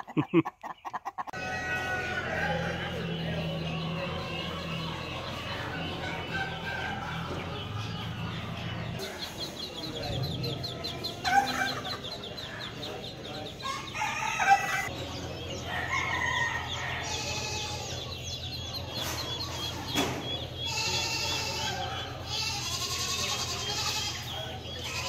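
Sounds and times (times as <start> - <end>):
hens clucking: 0.0 - 25.0
rooster crowing: 13.6 - 14.9, 15.7 - 17.7.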